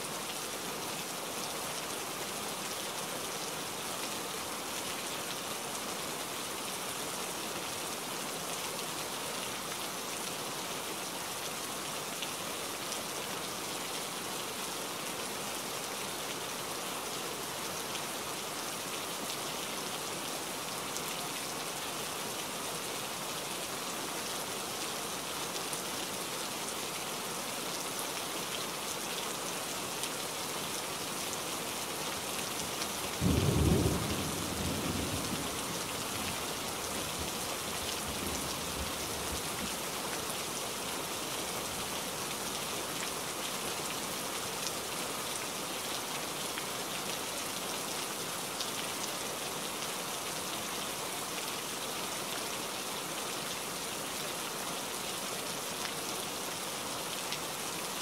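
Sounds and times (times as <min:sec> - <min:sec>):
rain falling on leaves: 0:00.0 - 0:58.0
low rumble of thunder: 0:33.2 - 0:35.8.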